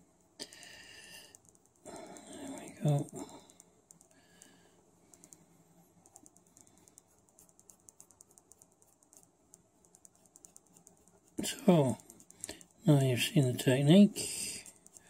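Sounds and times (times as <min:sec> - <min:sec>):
paintbrush scratching on stone surface: 0:05.8 - 0:15.0.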